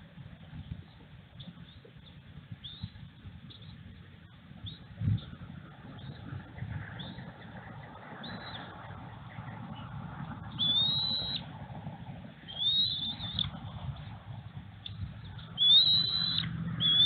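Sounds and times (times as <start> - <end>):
low background rumble: 0.0 - 17.0
eagle whistled calls: 2.6 - 3.8, 4.6 - 5.3, 8.2 - 8.7, 10.5 - 11.5, 12.4 - 13.6, 15.2 - 17.0
eagle high peeps: 10.5 - 11.5, 12.5 - 13.5, 15.5 - 17.0.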